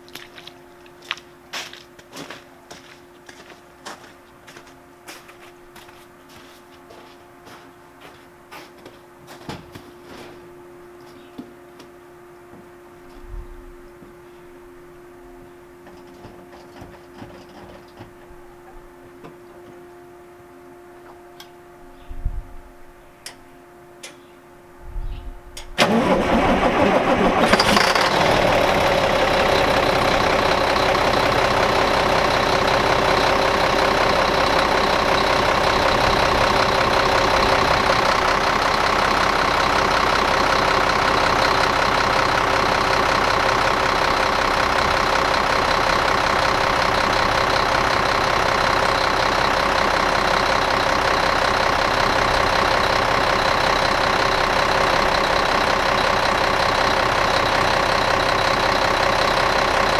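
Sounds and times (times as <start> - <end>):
diesel engine cranking and starting: 25.8 - 59.9
diesel engine idling: 25.8 - 59.9.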